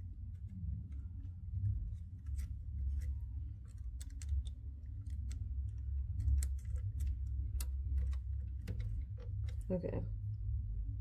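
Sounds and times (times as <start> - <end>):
steady low hum: 0.0 - 11.0
fingernails clicking on plastic connector: 2.3 - 9.7.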